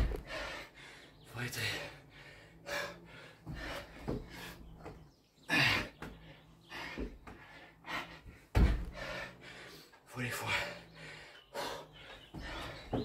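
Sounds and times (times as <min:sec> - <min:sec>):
man breathing heavily and gasping: 0:00.0 - 0:13.0
hands and feet thumping on floor: 0:08.5 - 0:09.1.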